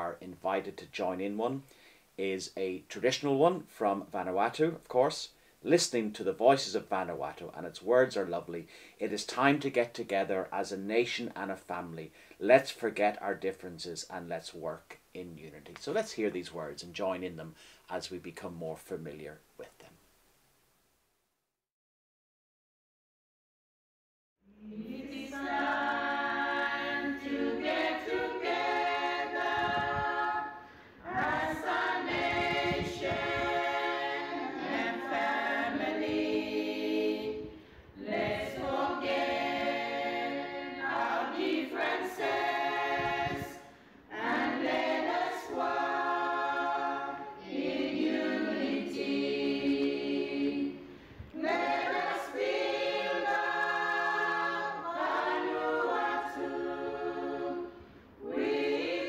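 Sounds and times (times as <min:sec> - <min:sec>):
choir singing: 0:24.5 - 0:59.0.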